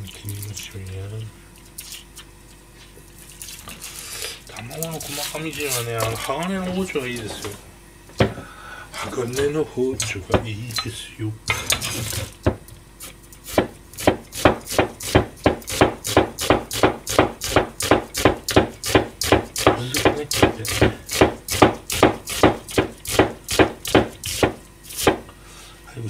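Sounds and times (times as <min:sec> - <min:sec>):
knife chopping on cutting board: 0:13.4 - 0:25.3.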